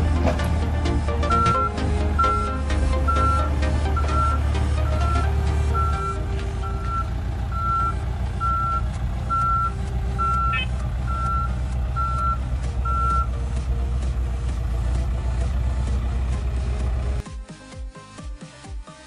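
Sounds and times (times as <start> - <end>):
diesel engine running: 0.0 - 17.3
reverse alarm beeping: 1.2 - 13.4.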